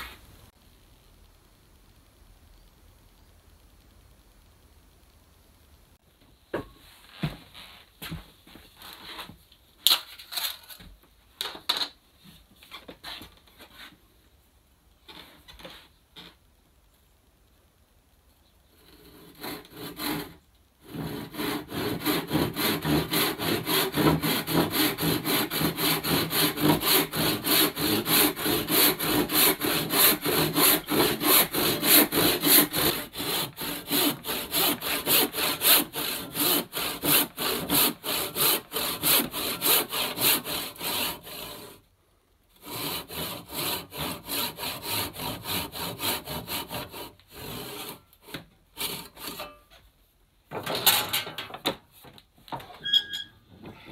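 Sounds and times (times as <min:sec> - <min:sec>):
handsaw cutting wood: 0:18.9 - 0:41.8, 0:42.6 - 0:49.4.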